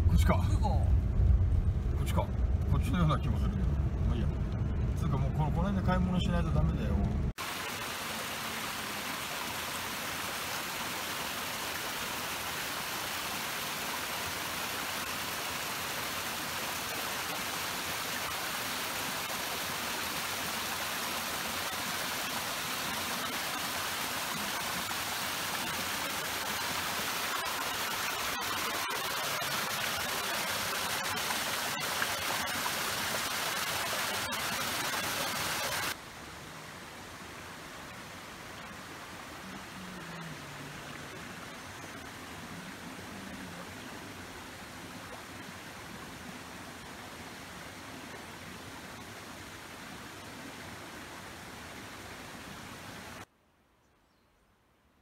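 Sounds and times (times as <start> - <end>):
stream rushing over boulders: 0.0 - 53.3.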